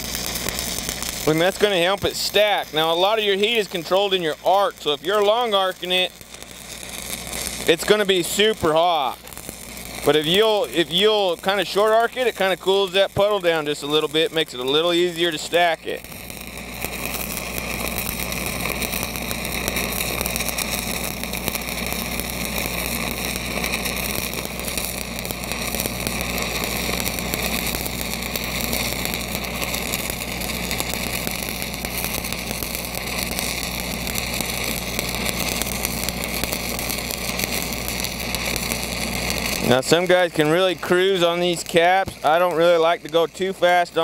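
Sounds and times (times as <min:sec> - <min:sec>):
welding arc crackling: 0:00.0 - 0:44.0
welding machine engine hum: 0:00.0 - 0:44.0.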